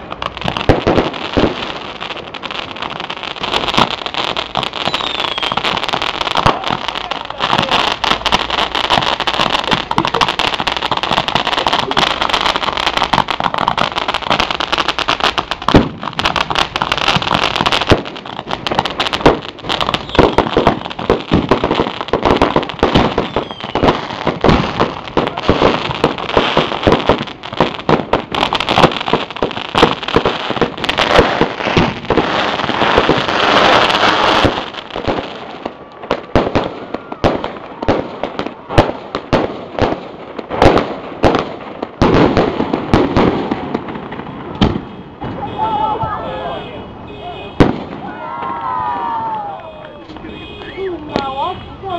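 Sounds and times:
fireworks steady hiss: 0.0 - 35.2
fireworks bangs and crackles: 0.0 - 51.9.

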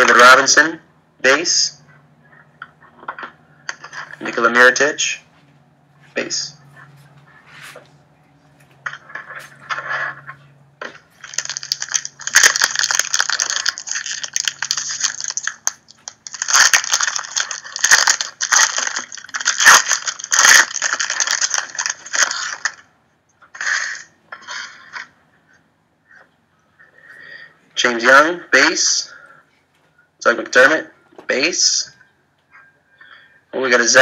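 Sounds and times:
foil wrapper crinkling: 10.8 - 22.9.

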